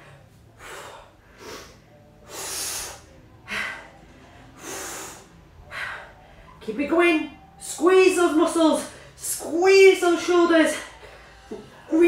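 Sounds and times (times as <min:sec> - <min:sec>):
woman breathing hard: 0:00.0 - 0:06.6, 0:10.7 - 0:12.0.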